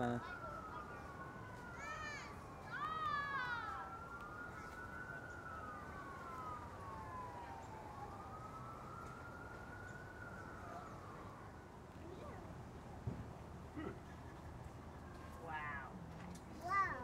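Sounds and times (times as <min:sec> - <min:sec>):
distant siren wailing: 0:00.0 - 0:17.0.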